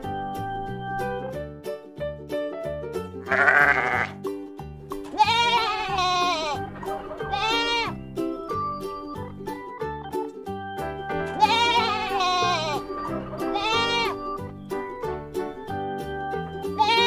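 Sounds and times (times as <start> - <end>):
goats bleating: 3.2 - 4.2, 5.1 - 8.0, 11.4 - 14.4, 16.7 - 17.0
music with steady beat: 4.2 - 17.0.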